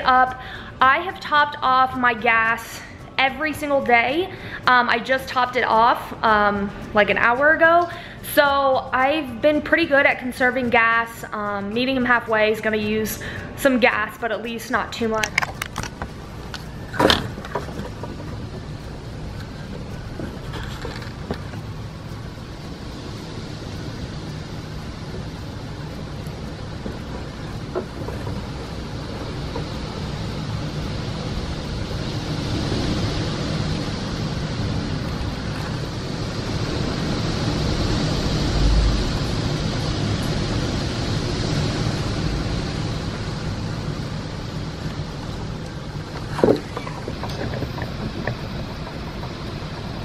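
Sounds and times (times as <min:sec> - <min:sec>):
strong wind gusting through trees: 0:15.2 - 0:50.0.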